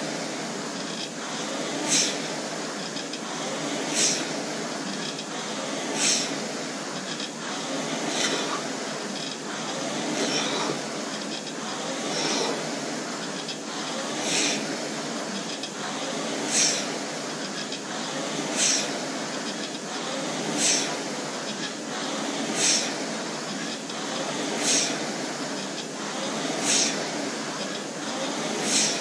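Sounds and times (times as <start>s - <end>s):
rowing machine flywheel whooshing: 0.0s - 29.0s.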